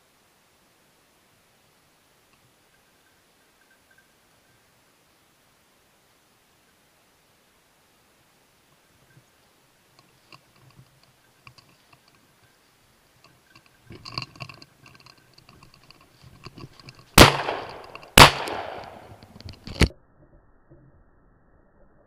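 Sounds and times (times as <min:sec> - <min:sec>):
shotgun shots with echo: 0:17.2 - 0:19.1.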